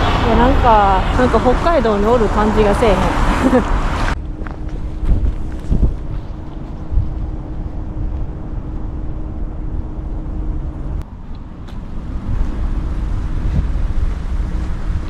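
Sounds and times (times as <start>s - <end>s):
city traffic rumble: 0.0s - 15.0s
steady hum: 3.8s - 15.0s.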